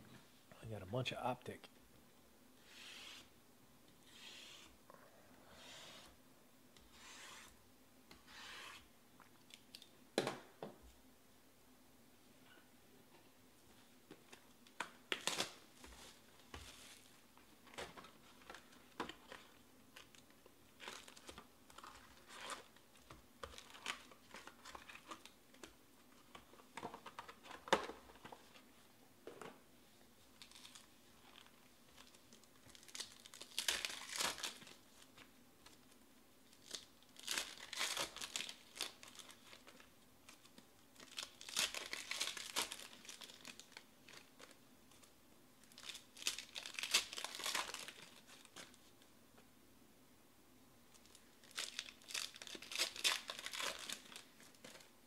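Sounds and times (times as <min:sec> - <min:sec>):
foil packs crinkling: 0:30.4 - 0:34.8, 0:36.5 - 0:44.6, 0:45.7 - 0:48.8, 0:51.0 - 0:54.9.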